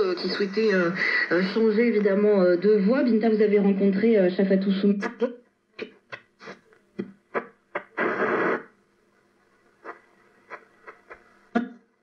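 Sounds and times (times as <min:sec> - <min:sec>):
radio stations and static: 0:00.0 - 0:03.2, 0:07.3 - 0:08.8, 0:09.7 - 0:11.4.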